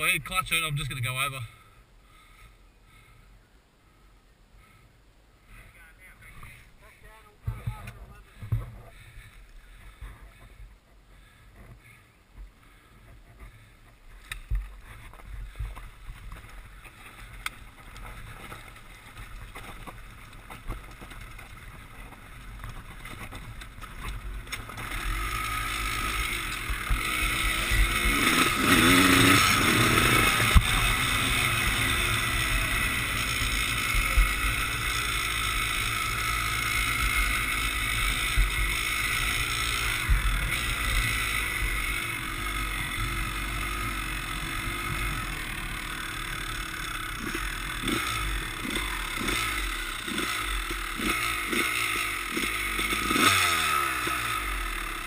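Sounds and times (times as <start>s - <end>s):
dirt bike engine revving: 16.4s - 55.0s.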